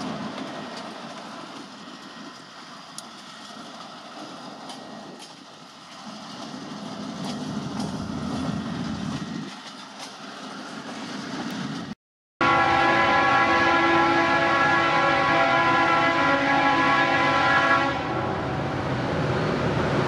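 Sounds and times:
locomotive engine rumble: 0.0s - 12.0s
train rolling noise: 0.0s - 20.0s.

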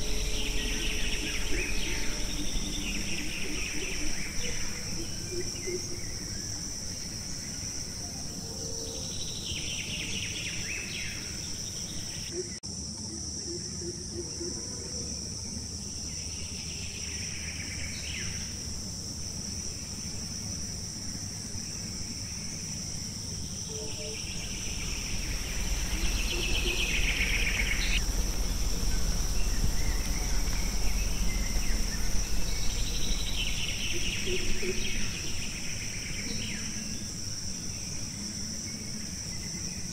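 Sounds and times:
low rumble: 0.0s - 6.3s, 24.1s - 36.1s
insects high drone: 0.0s - 39.9s
pulsing trilling insect call: 0.0s - 39.9s.

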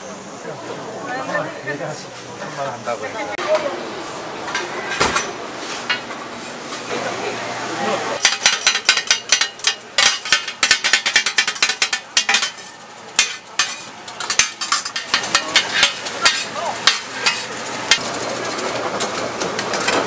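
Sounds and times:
metal spatulas scraping griddle: 8.2s - 20.0s.

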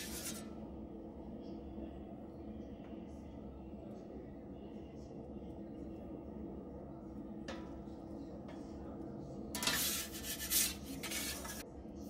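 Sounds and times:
metal peel scraping on stone: 0.0s - 0.5s, 9.6s - 11.6s
steady low hum: 0.0s - 12.0s.

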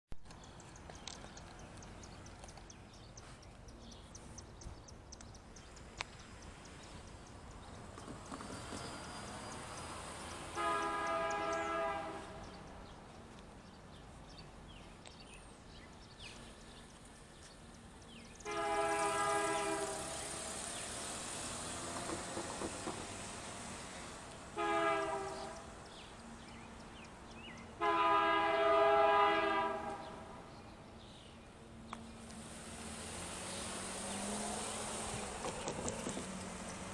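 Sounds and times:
locomotive air horn: 10.4s - 12.6s, 18.4s - 20.6s, 24.5s - 25.6s, 27.8s - 30.3s.

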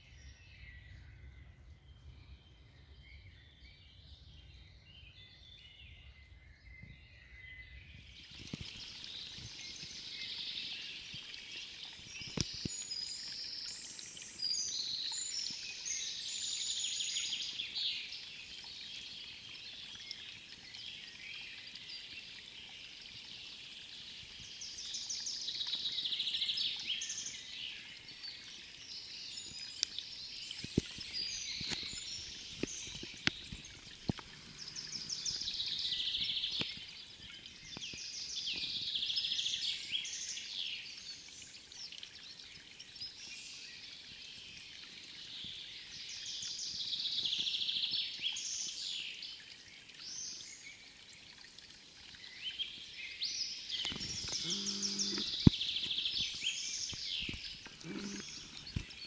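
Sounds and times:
trickling water: 5.2s - 59.0s
songbird trilling: 34.2s - 36.4s.

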